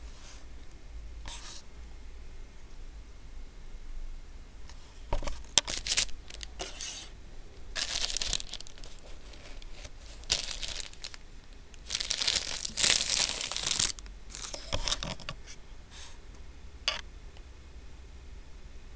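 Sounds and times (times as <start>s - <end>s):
plastic wrapper crinkling: 5.4s - 6.8s, 7.7s - 15.0s
bread roll tearing: 11.8s - 14.6s.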